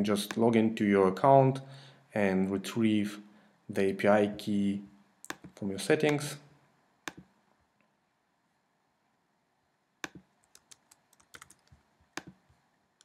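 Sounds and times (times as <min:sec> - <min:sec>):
computer keystrokes and clicks: 0:05.3 - 0:06.2, 0:07.1 - 0:07.3, 0:10.0 - 0:12.4.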